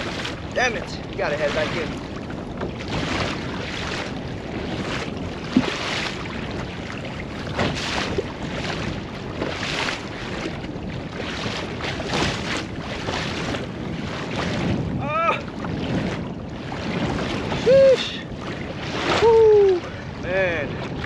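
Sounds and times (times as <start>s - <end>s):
waves slapping against kayak hull: 0.0s - 21.0s
wind buffeting microphone: 0.0s - 21.0s.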